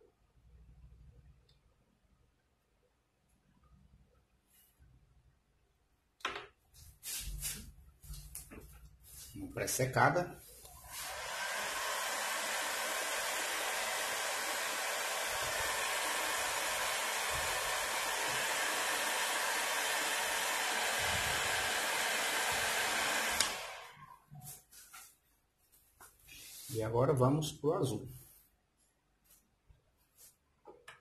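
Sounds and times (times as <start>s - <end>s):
heat gun blowing: 10.7s - 24.0s.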